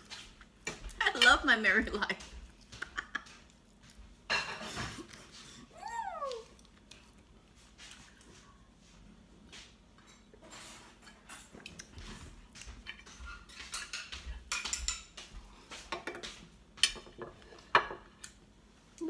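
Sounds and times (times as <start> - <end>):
cutlery scraping and clinking on plate: 4.3 - 5.1, 10.0 - 18.2.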